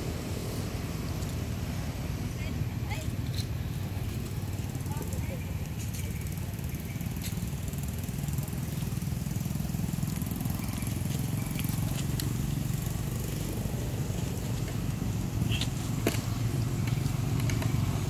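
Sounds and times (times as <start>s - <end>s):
small engine running: 3.9s - 18.0s.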